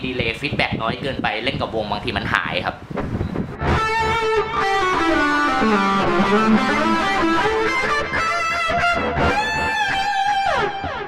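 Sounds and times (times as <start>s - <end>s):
distorted electric guitar solo: 3.5s - 11.0s.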